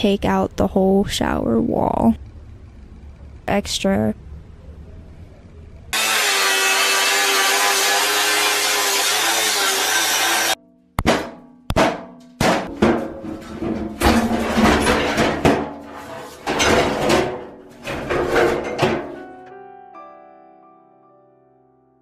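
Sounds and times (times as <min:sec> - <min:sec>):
angle grinder cutting metal: 0:06.0 - 0:10.6
heavy metallic knocks and clangs: 0:11.0 - 0:19.4.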